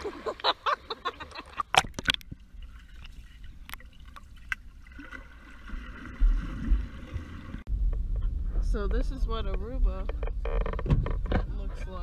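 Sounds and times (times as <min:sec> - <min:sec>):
pool water splashing: 0:00.0 - 0:07.7
underwater clicks: 0:01.6 - 0:04.7.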